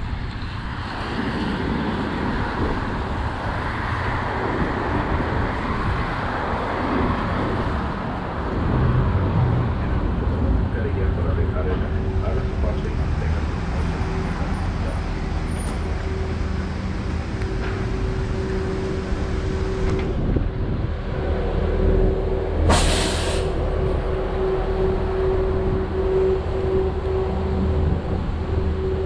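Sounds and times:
bus engine idling: 9.8 - 29.0
whining tone: 11.4 - 22.7, 23.4 - 29.0
air brake hiss: 22.7 - 23.6.

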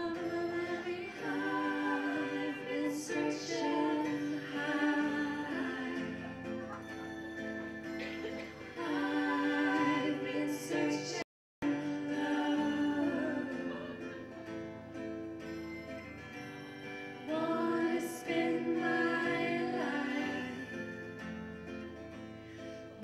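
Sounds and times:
women singing in harmony: 0.0 - 6.8, 8.0 - 14.4, 17.2 - 21.1
acoustic guitar: 0.0 - 23.0.

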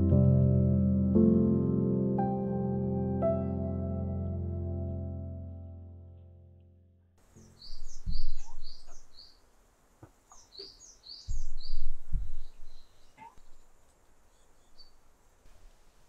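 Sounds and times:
songbird singing: 7.2 - 15.4
low thumps: 7.5 - 9.2, 11.2 - 13.6.

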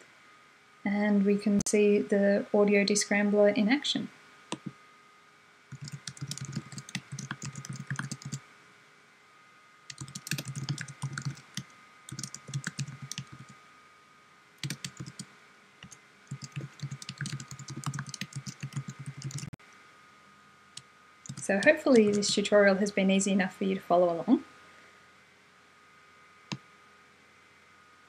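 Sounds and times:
typing on computer keyboard: 5.7 - 8.4, 9.9 - 13.6, 14.6 - 19.6, 21.3 - 22.4.

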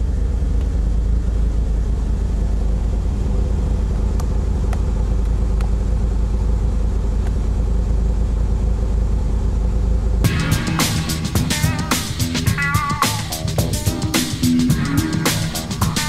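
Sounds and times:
car engine idling: 0.0 - 16.0
funk guitar music: 10.2 - 16.0.

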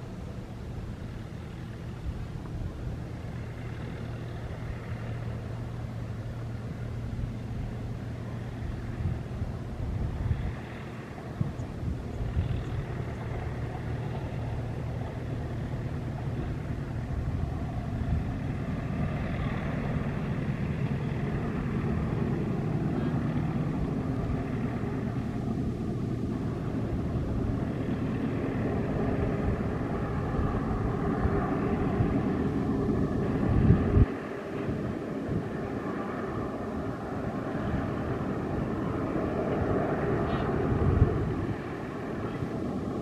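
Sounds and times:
diesel locomotive engine drone: 0.0 - 43.0
train rumble: 0.0 - 43.0.

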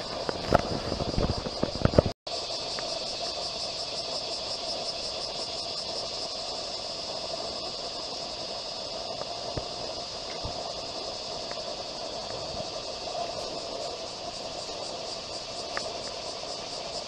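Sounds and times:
insects trilling: 0.0 - 17.0
outdoor hum and hiss: 0.0 - 17.0.

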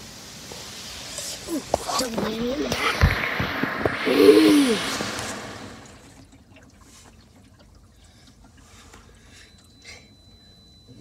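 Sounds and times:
low steady rumble: 0.2 - 11.0
water dripping and trickling: 4.8 - 9.8.

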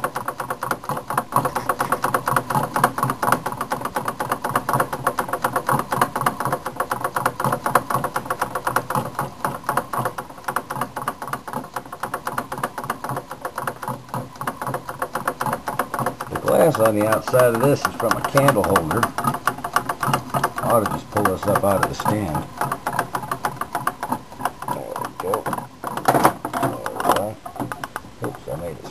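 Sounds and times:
stirling engine mechanical knocks: 0.0 - 28.9.

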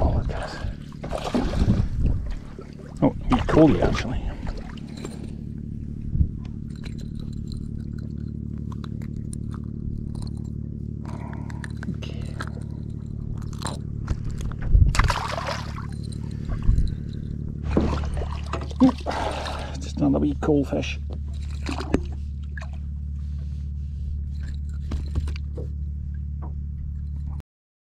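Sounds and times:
outboard motor idling: 0.0 - 27.4
fish splashing into water: 1.0 - 3.8, 14.9 - 16.0, 17.7 - 19.8
clicks and scrapes of unhooking: 6.4 - 14.7.

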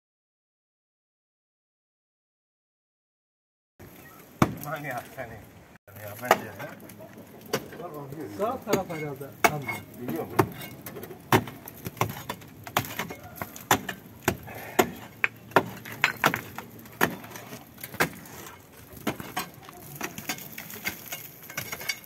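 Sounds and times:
metal tool chipping concrete block: 8.7 - 22.0.

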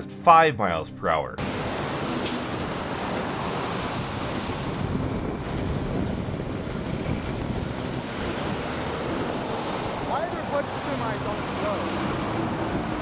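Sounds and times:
trucks passing on highway: 1.4 - 13.0
wind buffeting microphone: 2.6 - 10.1.

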